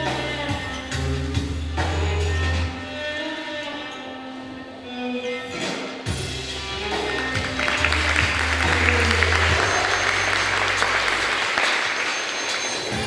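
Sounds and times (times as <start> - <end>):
music with low bass notes: 0.0 - 2.8, 6.1 - 11.4
audience applause: 6.6 - 13.0.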